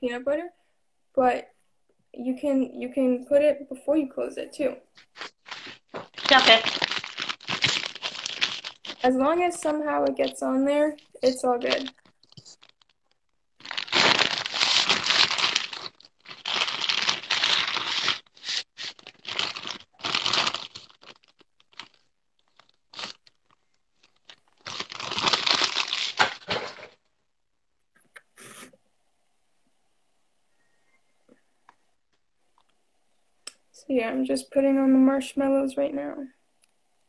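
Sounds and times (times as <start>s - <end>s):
plastic bag crinkling: 4.9s - 27.1s.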